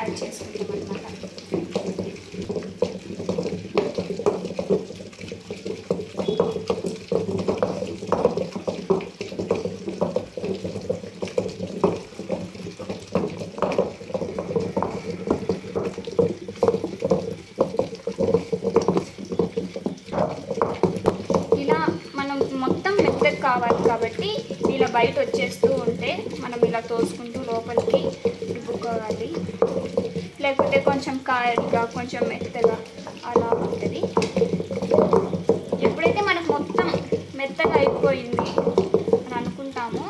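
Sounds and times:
stone pestle squelching in mortar: 0.0 - 40.0.

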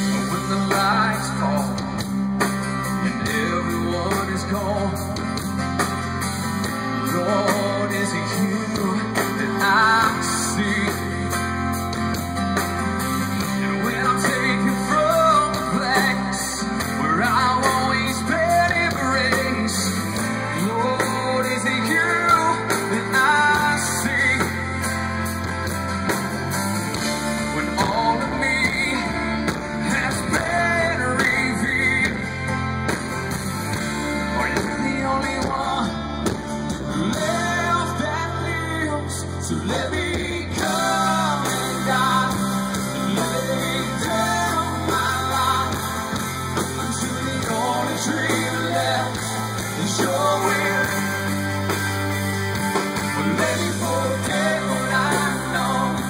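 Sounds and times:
live rock band playing: 0.0 - 56.0
melodic guitar line bending: 0.0 - 56.0.

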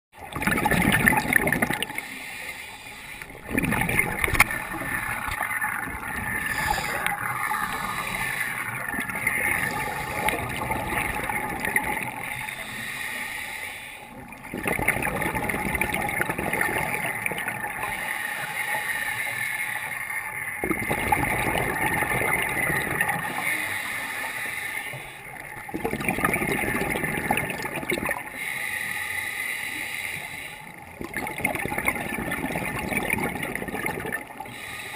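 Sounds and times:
air bubbling underwater: 0.2 - 2.0, 3.2 - 12.2
diver breathing through regulator: 1.8 - 3.6, 6.0 - 14.2, 23.0 - 25.3, 28.3 - 30.9, 34.4 - 34.9.

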